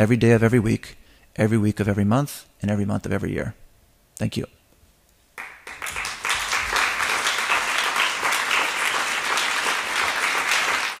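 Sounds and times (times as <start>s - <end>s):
audience applauding: 5.4s - 11.0s.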